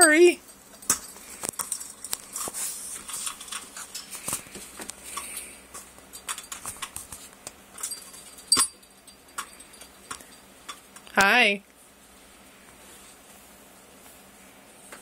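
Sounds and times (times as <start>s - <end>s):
soft rustles: 11.8s - 15.0s.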